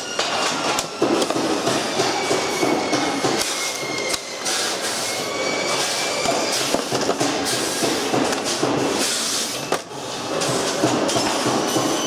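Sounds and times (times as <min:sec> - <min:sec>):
factory machinery clattering: 0:00.0 - 0:12.0.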